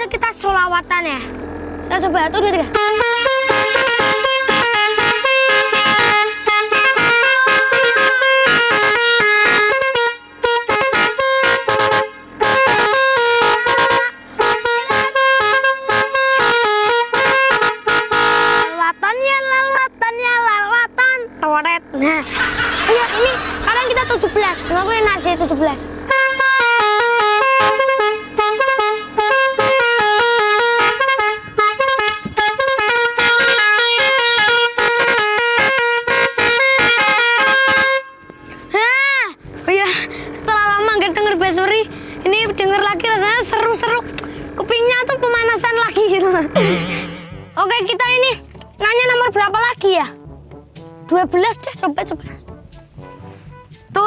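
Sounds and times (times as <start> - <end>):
air horn playing a melody: 2.7 - 18.9, 25.9 - 38.7, 46.5 - 48.0.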